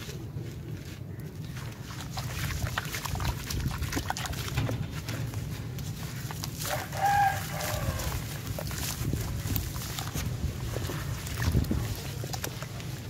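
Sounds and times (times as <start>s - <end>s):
wet squishing of crumbling cement: 0.0s - 13.0s
rooster crowing: 6.6s - 8.2s.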